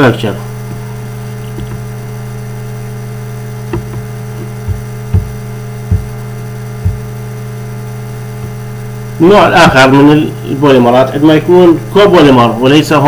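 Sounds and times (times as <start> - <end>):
electrical mains hum: 0.0 - 13.0
short low thumps: 0.6 - 2.7, 3.4 - 7.4.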